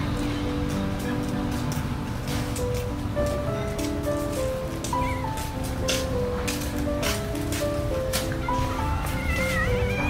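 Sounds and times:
light beat: 0:00.0 - 0:10.0.

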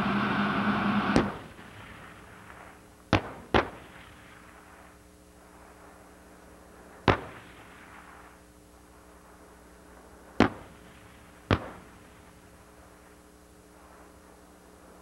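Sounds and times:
tank gunfire booms: 0:01.0 - 0:04.5, 0:10.4 - 0:12.0.

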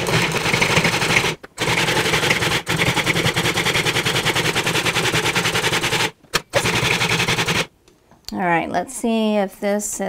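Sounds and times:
food processor chopping vegetables: 0:00.0 - 0:07.7.

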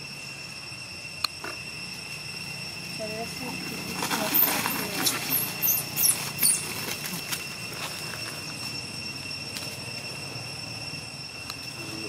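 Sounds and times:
constant high drone: 0:00.0 - 0:12.0
monkey high-pitched squeal: 0:03.2 - 0:07.6.

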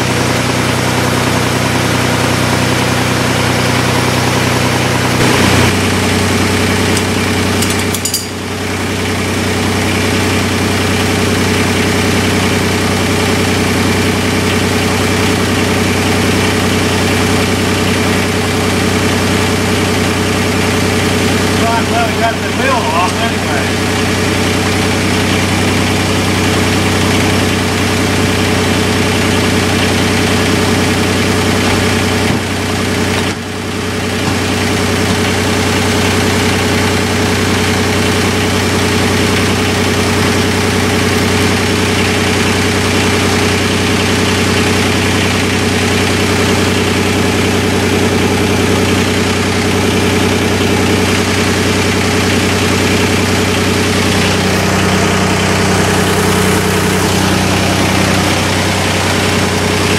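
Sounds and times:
engine idling: 0:00.0 - 0:59.9.

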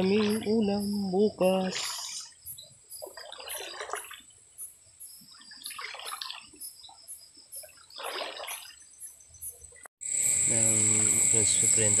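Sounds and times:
water splashing: 0:00.0 - 0:04.6, 0:05.2 - 0:07.0, 0:07.6 - 0:09.0
high insect trill: 0:00.0 - 0:12.0.

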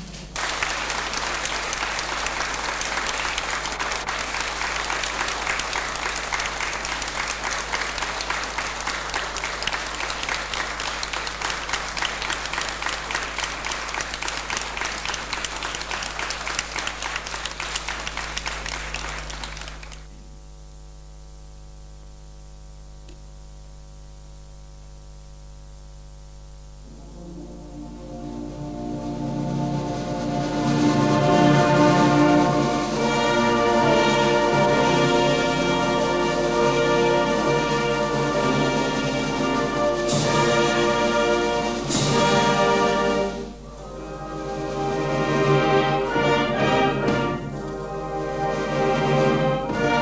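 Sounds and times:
faint steady hum: 0:00.0 - 0:50.0
audience applauding: 0:00.3 - 0:20.2, 0:30.3 - 0:43.4.

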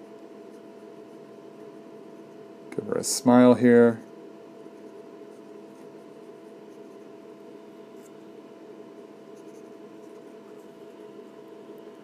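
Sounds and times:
electrical hum: 0:00.0 - 0:12.0
pen scratching on paper: 0:04.6 - 0:07.2, 0:09.0 - 0:10.6.

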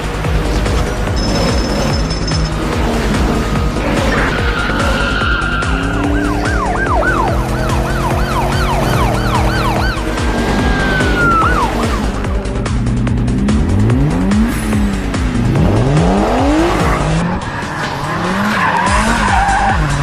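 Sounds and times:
background music: 0:00.0 - 0:20.0
police siren wailing and yelping: 0:04.0 - 0:12.3.

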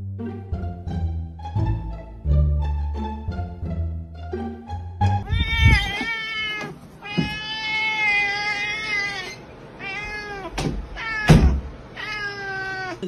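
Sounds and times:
cat meowing: 0:05.2 - 0:13.0.

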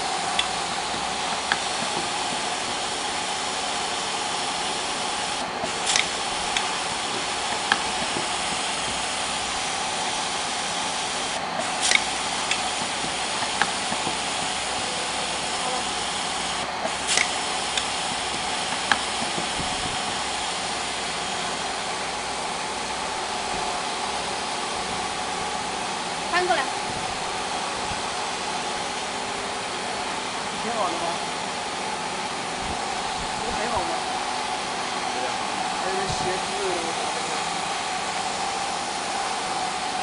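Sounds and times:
steady pneumatic hiss: 0:00.0 - 0:26.0
machine clicks and clacks: 0:16.9 - 0:20.2.

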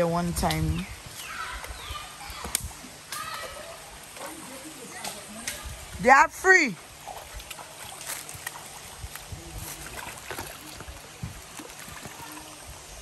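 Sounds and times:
stream running water: 0:00.0 - 0:13.0
water splashing: 0:01.4 - 0:13.0.

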